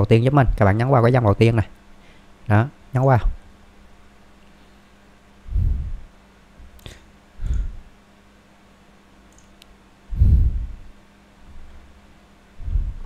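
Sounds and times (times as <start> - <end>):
computer mouse clicks: 9.3 - 9.7.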